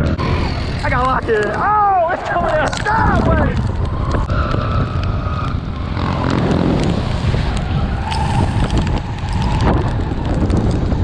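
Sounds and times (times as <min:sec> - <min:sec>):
wind on microphone: 0:02.2 - 0:11.0
atv engine under throttle: 0:03.6 - 0:11.0.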